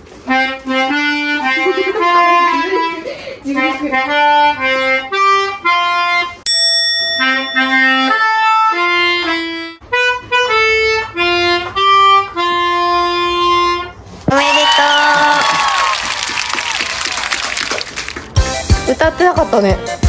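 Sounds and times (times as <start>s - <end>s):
melodica playing a song: 0.0s - 6.4s, 7.2s - 14.1s, 18.4s - 20.0s.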